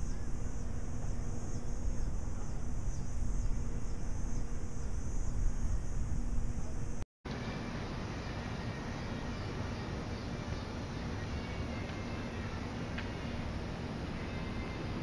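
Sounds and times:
evening insects humming: 0.0s - 15.0s.

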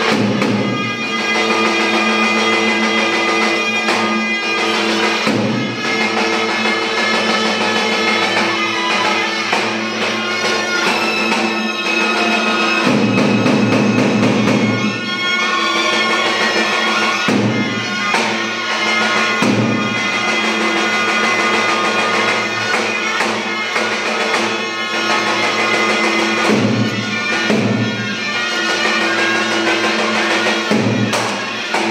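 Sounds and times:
drum beat: 0.0s - 0.9s, 5.2s - 6.6s, 10.8s - 15.3s, 17.3s - 20.9s, 26.2s - 28.3s, 29.8s - 31.9s
reed wind instrument melody: 0.0s - 31.9s.

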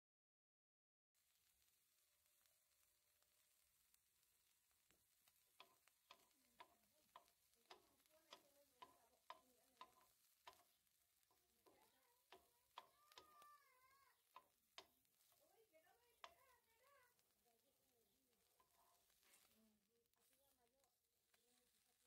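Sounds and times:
utensil clicking on frying pan: 4.9s - 17.4s, 18.4s - 19.2s.

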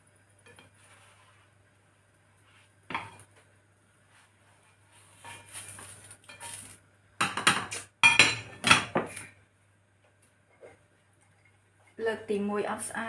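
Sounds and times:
spatula scraping frying pan: 4.9s - 6.7s.

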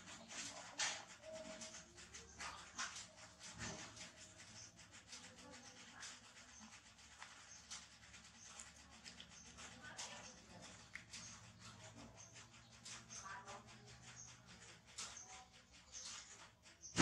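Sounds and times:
monkey sucking on fingers: 0.0s - 17.0s.

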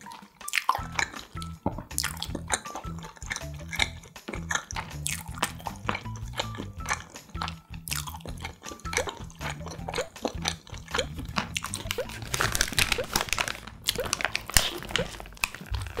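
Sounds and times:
crunchy chewing: 0.0s - 16.0s
paper wrapper crinkling: 11.3s - 16.0s.

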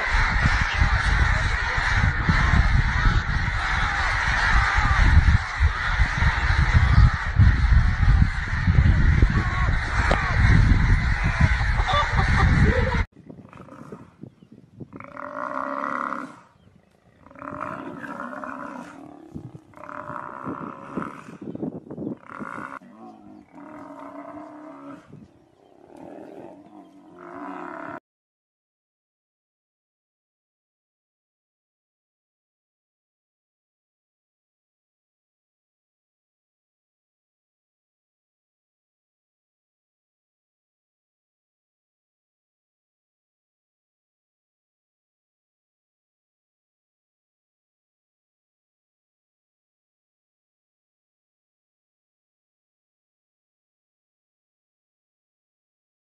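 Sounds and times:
chickens squawking and scuffling: 0.0s - 13.0s
buffalo bellowing: 22.2s - 28.0s.

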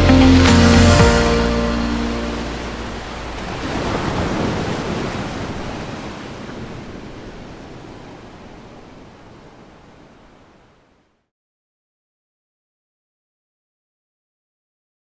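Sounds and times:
ocean surf: 0.0s - 11.1s.

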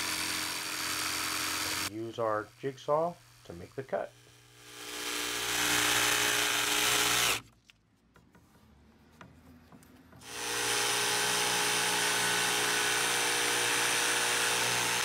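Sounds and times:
jigsaw cutting wood: 0.0s - 1.9s, 2.9s - 7.4s, 10.2s - 15.0s.

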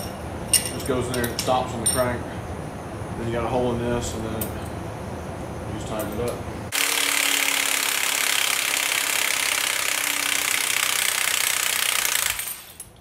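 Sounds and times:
impact wrench hammering: 6.7s - 12.9s.

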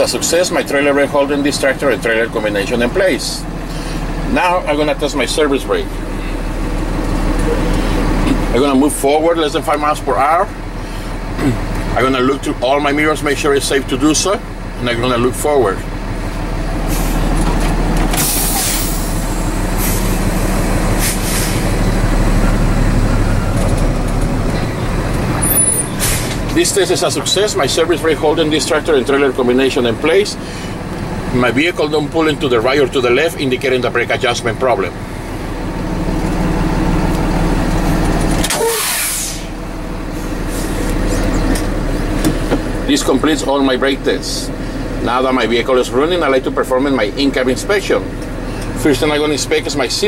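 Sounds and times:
truck engine running: 0.0s - 50.0s
air brake hisses: 18.1s - 19.2s, 19.8s - 20.2s, 21.0s - 21.7s, 25.4s - 26.4s, 38.5s - 39.6s.

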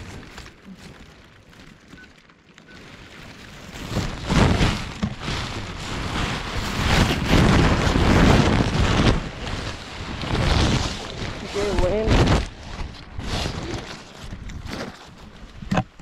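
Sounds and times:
grass rustling against microphone: 0.0s - 16.0s
wind rushing on microphone: 3.9s - 14.8s.

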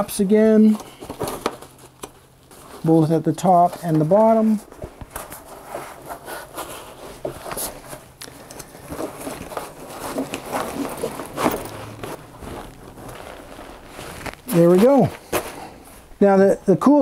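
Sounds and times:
straps rustling and buckles clicking: 0.0s - 16.2s.

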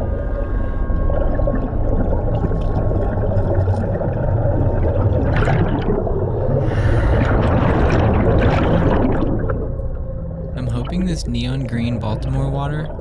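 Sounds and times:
exhaled bubbles rushing: 0.0s - 13.0s
low rumble of water: 0.0s - 13.0s
diver breathing underwater: 6.4s - 8.2s.

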